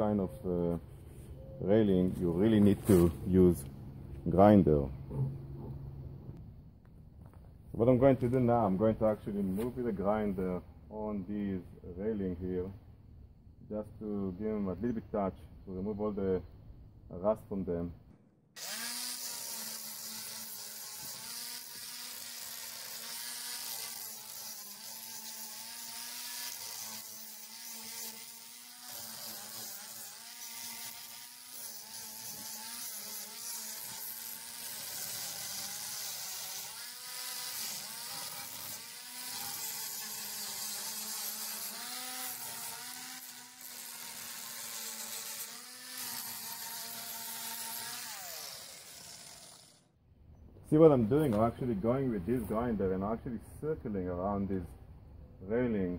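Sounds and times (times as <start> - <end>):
angle grinder grinding metal: 0.0 - 5.7, 18.6 - 49.9.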